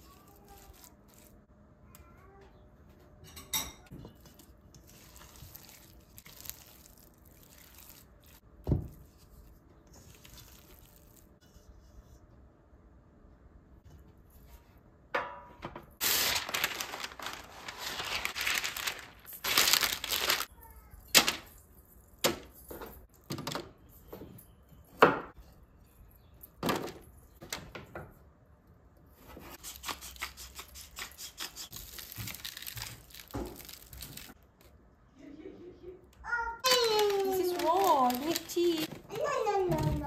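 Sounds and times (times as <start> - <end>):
baking paper crinkling: 0.0 - 1.5, 4.1 - 11.4, 16.0 - 20.5, 29.6 - 34.4, 36.6 - 40.0
seasoning sprinkling patter: 4.3 - 8.4.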